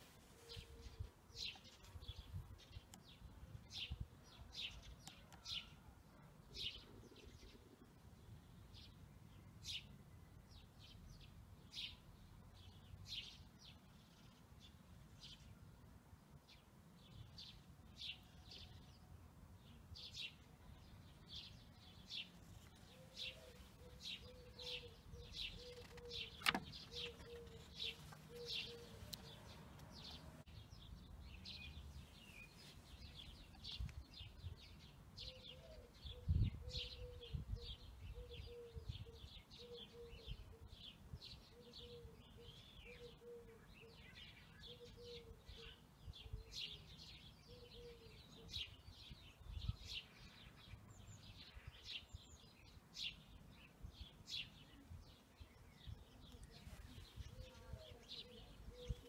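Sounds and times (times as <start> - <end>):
small birds chirping: 0.1 - 5.8, 16.3 - 59.0
sharp click: 25.9 - 27.0.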